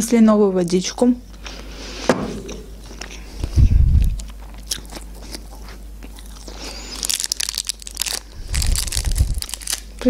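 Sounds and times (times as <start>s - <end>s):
plastic wrapper crinkling: 6.2s - 10.0s.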